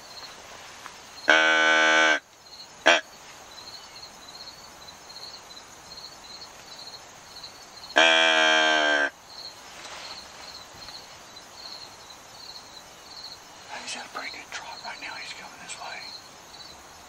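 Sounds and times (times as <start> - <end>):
insects chirping: 0.0 - 17.0
mouth-blown deer call: 1.3 - 2.2, 8.0 - 9.1.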